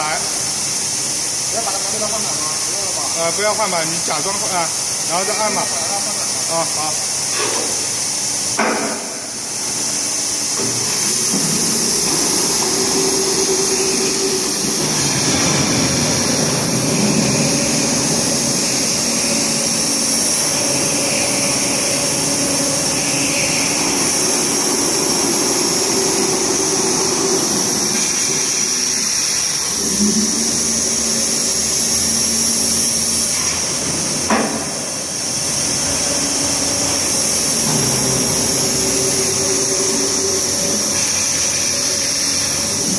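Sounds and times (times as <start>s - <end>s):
machine hum with high hiss: 0.0s - 42.9s
motor tones changing pitch: 9.8s - 33.3s, 35.1s - 42.9s.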